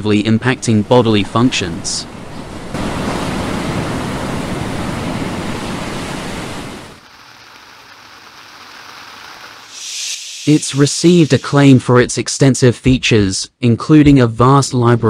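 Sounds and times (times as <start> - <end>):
ocean surf rushing: 0.3 - 11.8
rain pattering on a tent: 6.1 - 9.8.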